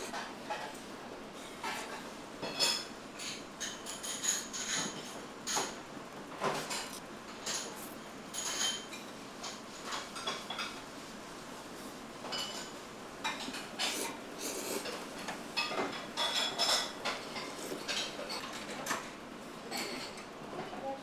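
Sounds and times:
slurping noodles: 0:13.8 - 0:15.0.

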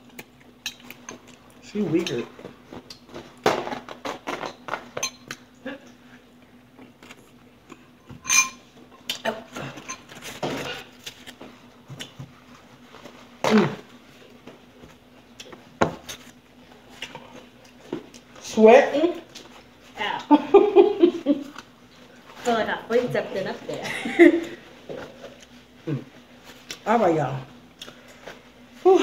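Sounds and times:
utensils clinking against bowls: 0:05.0 - 0:05.4, 0:08.1 - 0:08.7, 0:09.7 - 0:10.2.

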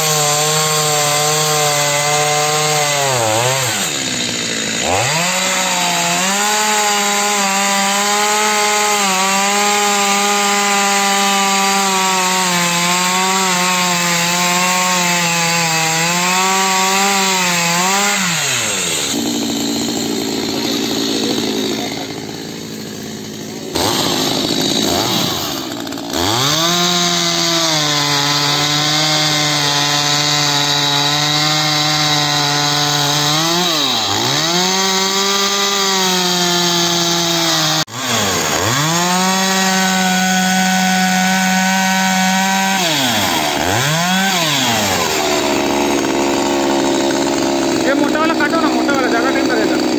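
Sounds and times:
chainsaw cutting wood: 0:00.0 - 0:49.9.

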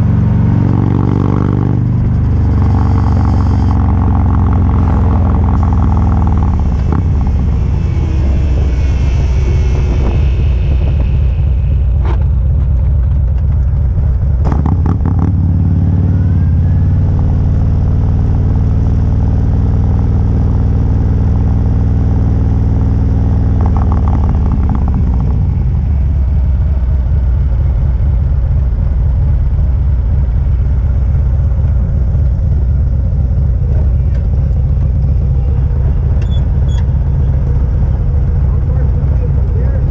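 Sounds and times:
motorcycle engine running: 0:00.0 - 0:39.9
wind rush: 0:04.6 - 0:14.5.

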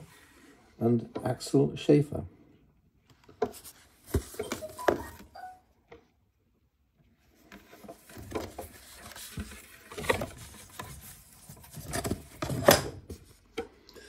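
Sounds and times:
book pages rustling and crackling: 0:03.4 - 0:05.3, 0:07.3 - 0:13.4.

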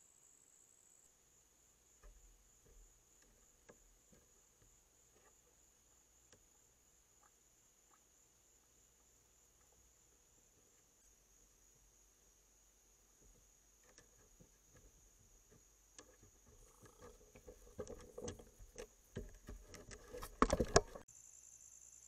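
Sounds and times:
crickets chirping: 0:00.0 - 0:22.0
animal taps and scuffs: 0:13.2 - 0:21.0.

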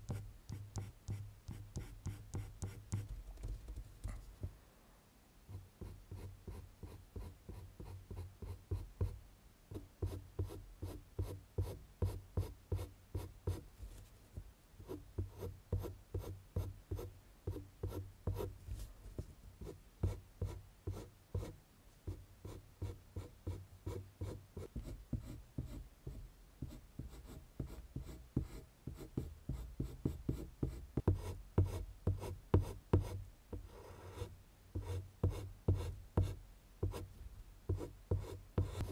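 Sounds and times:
pencil scratching on paper: 0:00.1 - 0:03.1, 0:37.7 - 0:38.9.

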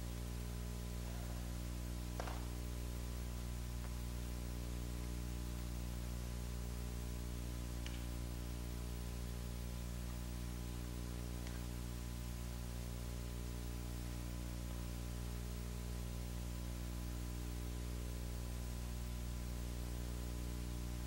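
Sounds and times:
background hiss: 0:00.0 - 0:21.0
electrical hum: 0:00.0 - 0:21.0.

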